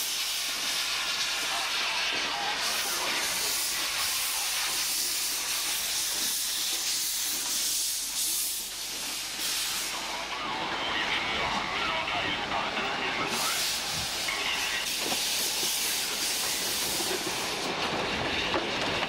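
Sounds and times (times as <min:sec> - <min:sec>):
steam locomotive hissing steam: 0:00.0 - 0:18.2.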